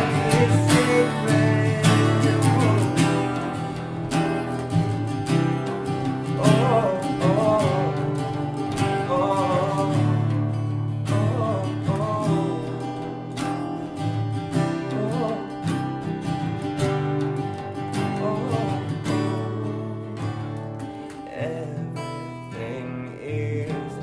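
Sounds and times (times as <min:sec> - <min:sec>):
voices singing: 0:00.0 - 0:03.5
acoustic guitars strummed: 0:00.0 - 0:24.0.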